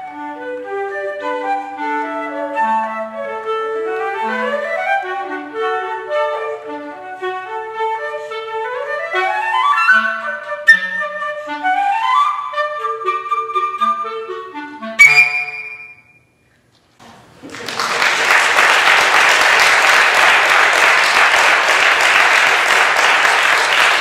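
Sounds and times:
flute and clarinet duet: 0.0 - 16.2.

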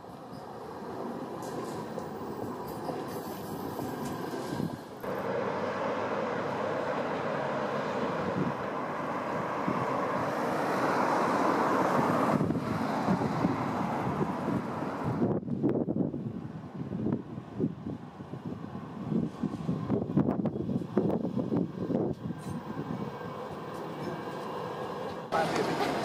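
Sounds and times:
tram running past: 0.0 - 15.6, 18.0 - 26.0
distant tram approaching: 0.0 - 26.0
wind buffeting microphone: 8.0 - 10.9, 11.5 - 24.6.

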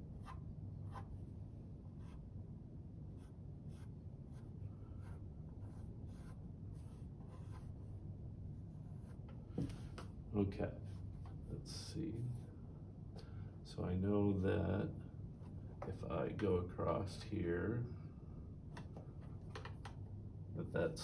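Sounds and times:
pencil sketching on paper: 0.0 - 1.1, 1.9 - 2.2, 3.1 - 7.9
low room hum: 0.0 - 21.0.

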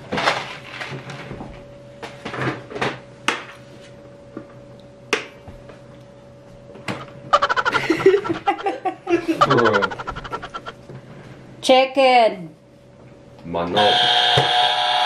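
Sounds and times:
loud rapid laughter: 7.4 - 10.7.

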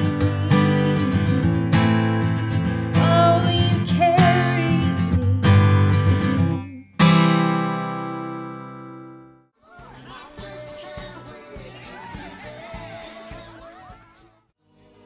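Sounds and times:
acoustic guitar strumming chords: 0.0 - 9.4.

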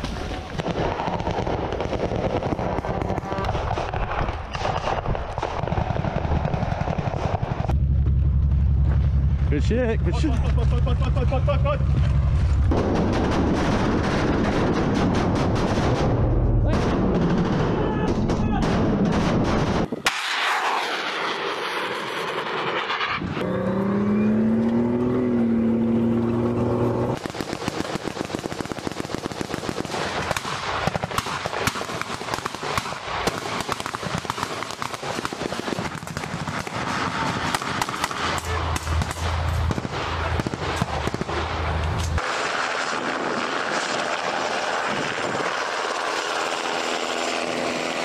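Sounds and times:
machine-gun fire: 0.6 - 8.7, 12.6 - 22.9, 27.1 - 46.8
low rumble: 7.4 - 19.9, 38.4 - 42.2
wavering pitched drone: 20.6 - 27.2.

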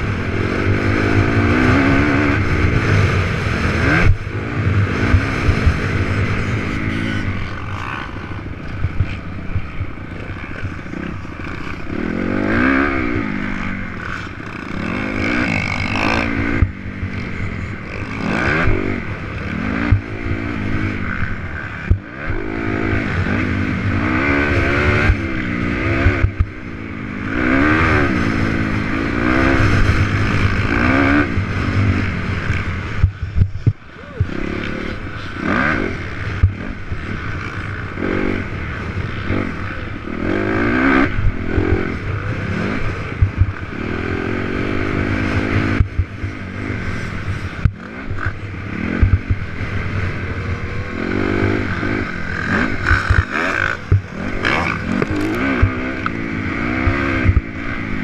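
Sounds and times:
dirt bike engine revving: 0.0 - 58.0
bike rattling over bumps: 50.3 - 56.2.

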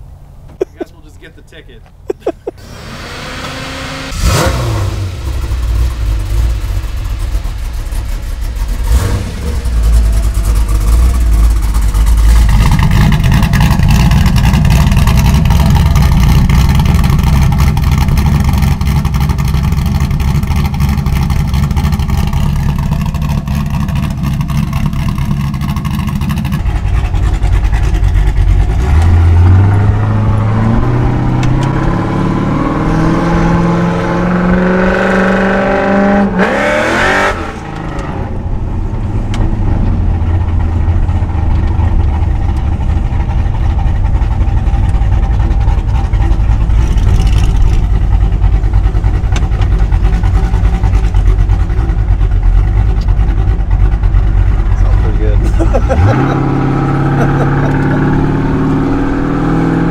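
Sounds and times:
engine revving up: 2.6 - 7.4, 8.6 - 19.3, 20.1 - 38.4, 54.8 - 59.9
vee-eight engine lopey idle: 5.2 - 29.0, 38.7 - 56.3.

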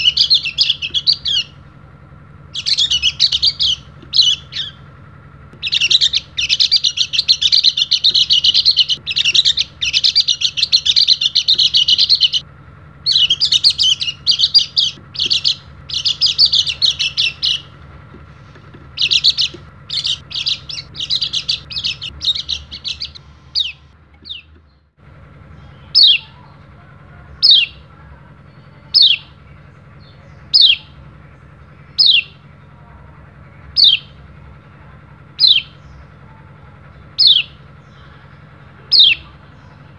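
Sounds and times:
bird twittering song: 0.0 - 1.7, 2.4 - 5.0, 5.6 - 12.4, 13.0 - 26.6, 27.3 - 32.8, 33.4 - 39.9
sharp falling bird calls: 0.0 - 1.7, 2.4 - 5.0, 5.6 - 12.4, 13.0 - 24.8, 27.3 - 27.9, 28.6 - 32.7, 36.9 - 39.9.

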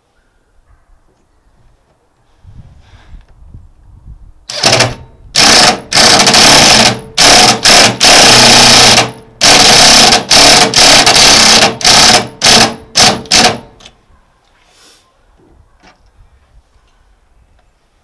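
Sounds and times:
impact driver hammering: 4.5 - 13.8.

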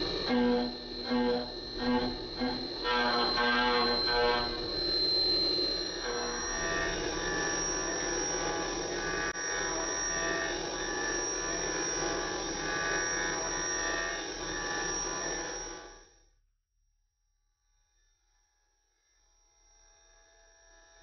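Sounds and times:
metal cutting noise: 0.0 - 15.6
milling machine spindle whine: 0.0 - 15.9.

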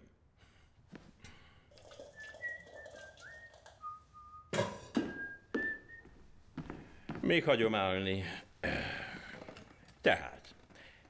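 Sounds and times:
man whistling a tune: 2.0 - 6.1.

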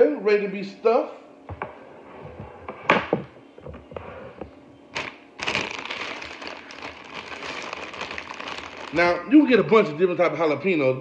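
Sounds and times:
sharp plastic crackles: 4.9 - 9.1
plastic bags crinkling: 4.9 - 9.6.

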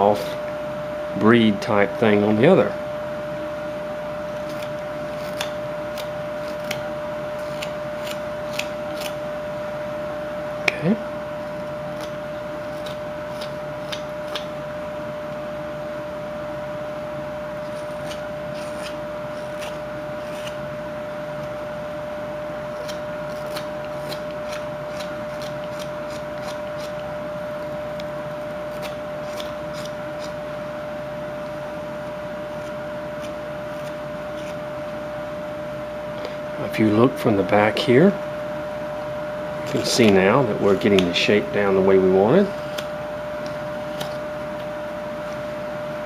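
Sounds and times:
steady hum: 0.0 - 46.0
knife cutting and scraping wood: 4.4 - 9.2, 11.9 - 14.5, 17.6 - 20.8, 22.7 - 27.2, 28.0 - 30.5, 32.4 - 35.0, 42.4 - 45.5.

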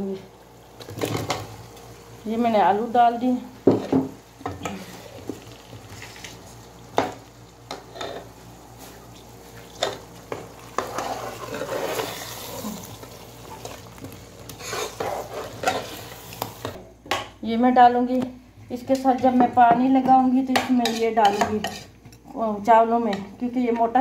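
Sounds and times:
masala sizzling: 0.0 - 24.0
metal spoon scraping a pot: 14.6 - 16.0, 20.8 - 22.0.

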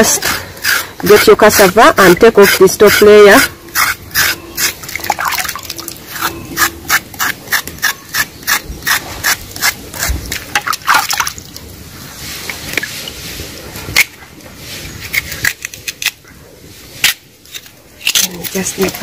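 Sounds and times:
knife scraping root: 0.0 - 5.1, 6.1 - 10.5, 14.8 - 16.2, 17.0 - 19.0.

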